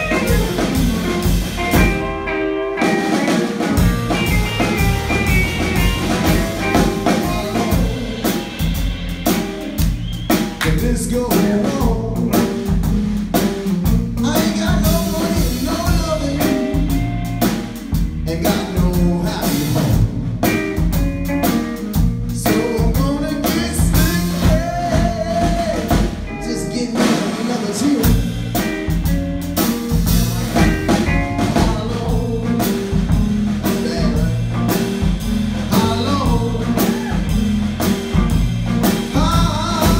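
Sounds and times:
drum kit beat: 0:00.0 - 0:39.9
electric bass: 0:00.0 - 0:39.9
electric guitar: 0:00.0 - 0:39.9
man singing: 0:06.6 - 0:08.4, 0:10.6 - 0:12.8, 0:14.1 - 0:17.0, 0:18.2 - 0:20.0, 0:22.3 - 0:28.3, 0:30.6 - 0:35.0, 0:35.6 - 0:37.5, 0:38.8 - 0:39.9.

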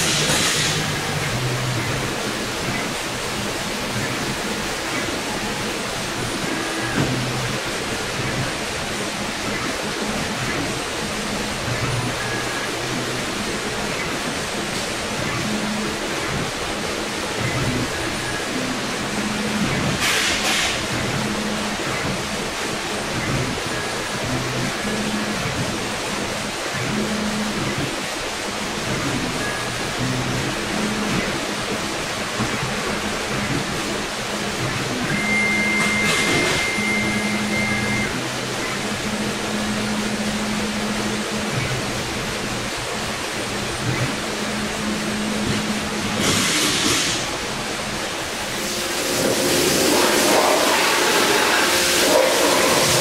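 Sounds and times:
machine hiss: 0:00.0 - 0:03.0, 0:45.2 - 0:47.5, 0:48.3 - 0:53.0
high whine: 0:00.0 - 0:53.0
low motor hums: 0:20.8 - 0:46.2
cnc router hissing: 0:48.4 - 0:53.0.

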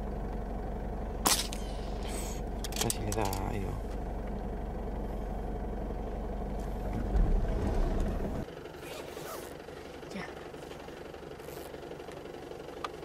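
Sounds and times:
truck engine running: 0:00.0 - 0:13.0
low thump: 0:06.9 - 0:08.4.

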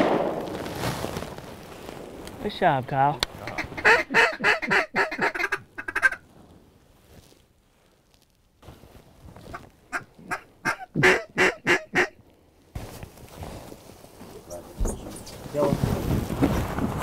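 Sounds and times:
duck quacking: 0:03.4 - 0:06.2, 0:09.9 - 0:12.2.

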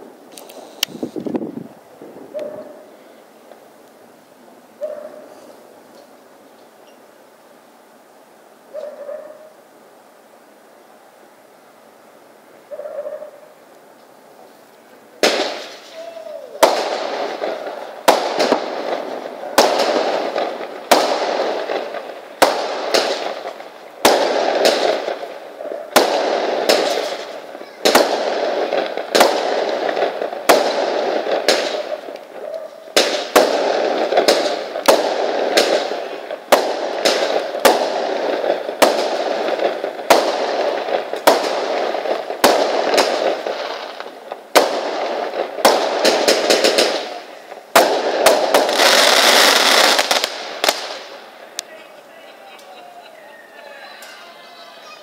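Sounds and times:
fireworks banging: 0:15.1 - 0:55.0.

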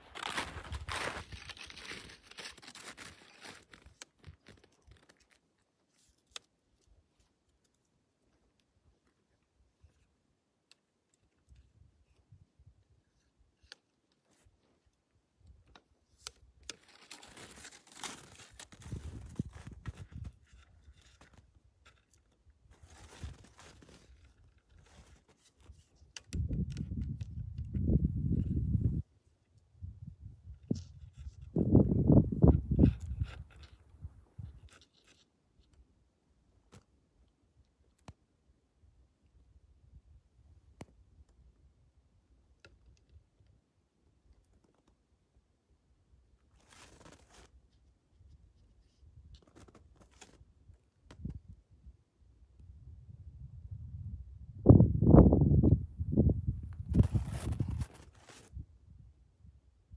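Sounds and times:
footsteps crunching in snow: 0:00.0 - 0:04.6, 0:16.8 - 0:20.2, 0:22.7 - 0:24.2, 0:56.9 - 0:58.5
faint clicks and crunches: 0:00.0 - 0:12.2, 0:13.2 - 0:28.5, 0:32.5 - 0:35.8, 0:36.6 - 0:36.9, 0:44.3 - 0:45.0, 0:46.4 - 0:51.4, 0:56.7 - 0:58.5.

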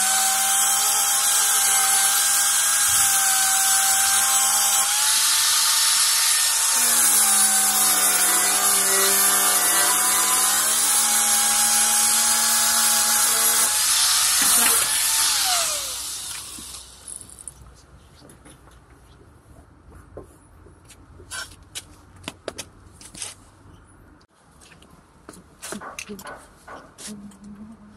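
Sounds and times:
angle grinder grinding paint: 0:00.0 - 0:17.3.

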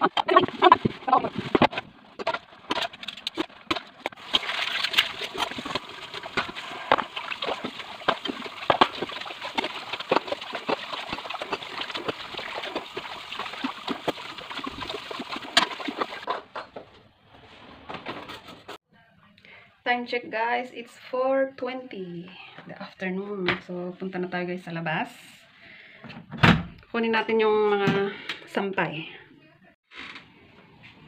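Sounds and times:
tap water running into sink: 0:03.3 - 0:16.3.

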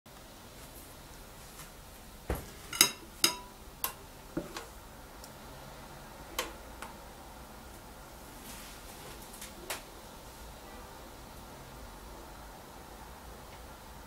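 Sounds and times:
metal ladle clinking on glass bowl: 0:02.7 - 0:04.0.

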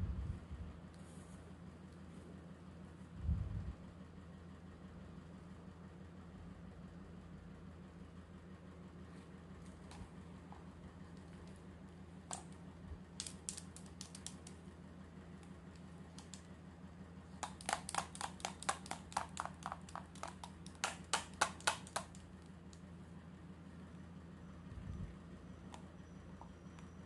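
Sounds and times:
low steady hum: 0:00.0 - 0:27.0
plastic toy clicks and taps: 0:13.2 - 0:14.6, 0:16.2 - 0:16.5, 0:17.4 - 0:22.2.

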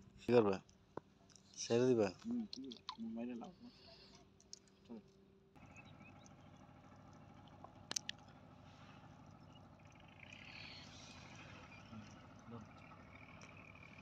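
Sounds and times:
faint outdoor hum: 0:00.0 - 0:14.0
sharp click: 0:07.9 - 0:08.2.

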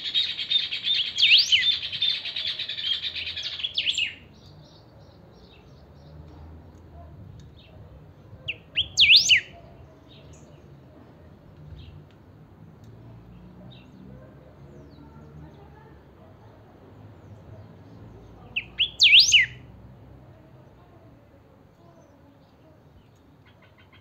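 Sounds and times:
faint chirps of other birds: 0:00.0 - 0:24.0
bird singing whistled phrase: 0:00.9 - 0:01.9, 0:08.5 - 0:09.5, 0:18.6 - 0:19.6.

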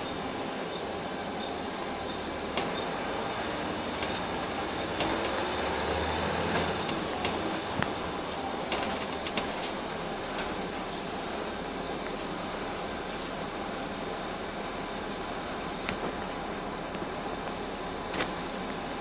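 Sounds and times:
bus engine and road noise: 0:00.0 - 0:19.0.

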